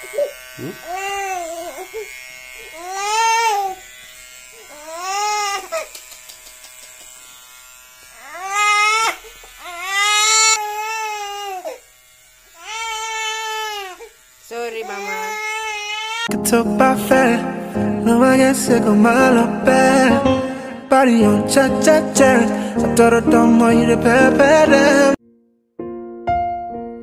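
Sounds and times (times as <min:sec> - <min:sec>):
toddler crying: 0:00.0 - 0:03.8, 0:04.7 - 0:05.9, 0:08.2 - 0:11.8, 0:12.6 - 0:14.1, 0:14.8 - 0:16.3
electric hair clipper buzzing: 0:00.0 - 0:16.3.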